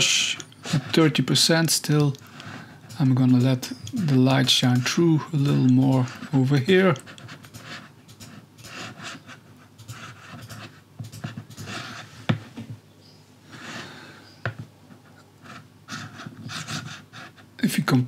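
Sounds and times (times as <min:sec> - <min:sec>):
sharp clicks: 0:01.9 - 0:06.1
soft breathing: 0:02.2 - 0:02.9, 0:13.4 - 0:14.5.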